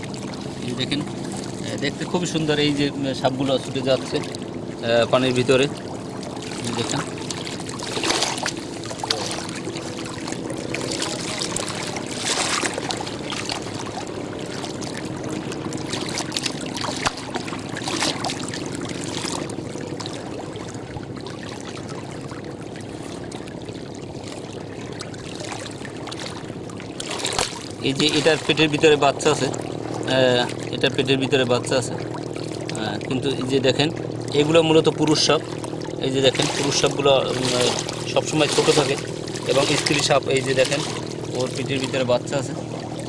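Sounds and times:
river waves lapping a bank: 0.0s - 43.0s.

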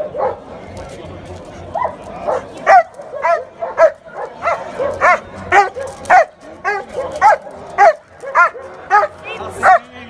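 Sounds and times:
dog barking: 0.0s - 0.4s, 1.8s - 9.9s.

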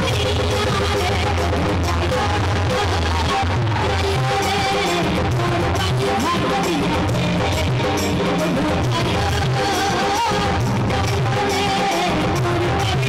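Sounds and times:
keyboard and drum accompaniment: 0.0s - 13.0s
woman singing into a microphone: 0.0s - 13.0s.

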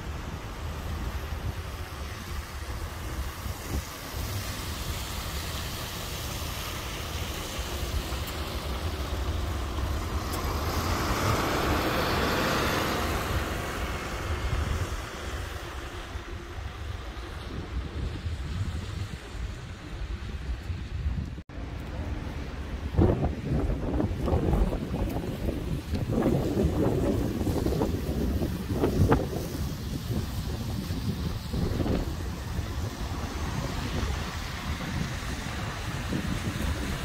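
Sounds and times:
bus motor running: 0.0s - 18.1s
tyres hissing on wet road: 0.0s - 37.0s.

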